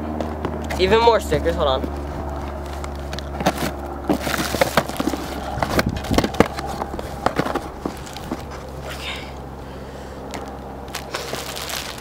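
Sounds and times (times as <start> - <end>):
steady low rumble: 0.0 - 12.0
plastic packaging crinkling: 3.5 - 8.5, 10.9 - 12.0.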